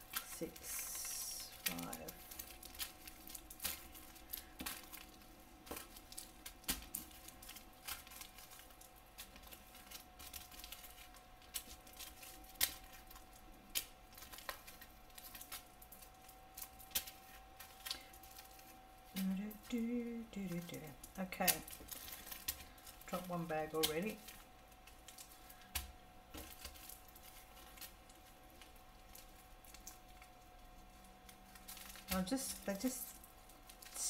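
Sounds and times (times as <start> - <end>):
plastic bags crinkling: 0.0 - 34.0.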